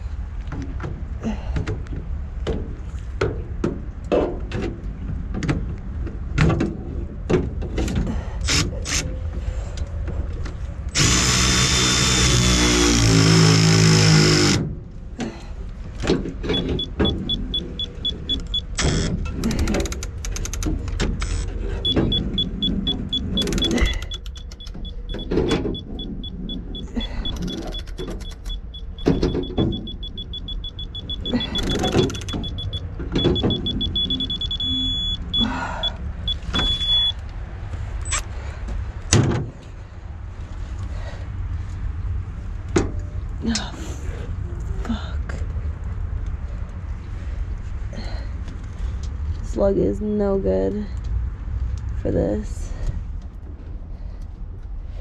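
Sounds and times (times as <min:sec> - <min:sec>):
loud whirring: 0:10.9 - 0:14.6
pulsing electronic beep: 0:21.8 - 0:37.2.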